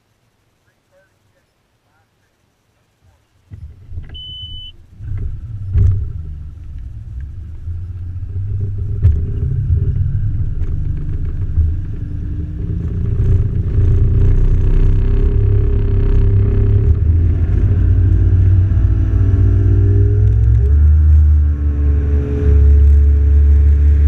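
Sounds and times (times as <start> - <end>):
short electronic beep: 4.1 - 4.8.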